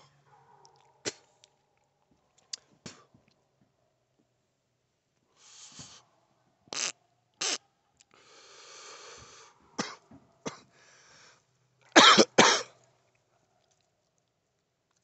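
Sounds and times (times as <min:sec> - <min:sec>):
harsh coughing: 0:09.8 - 0:10.7, 0:12.0 - 0:12.8.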